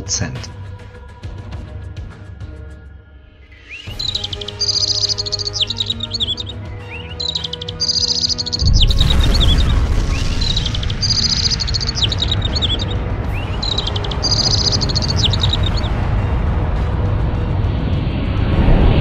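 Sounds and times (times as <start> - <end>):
soft music: 0.0 - 2.8, 3.5 - 18.7
birds chirping: 3.5 - 16.0
deep explosion rumble: 8.6 - 19.0.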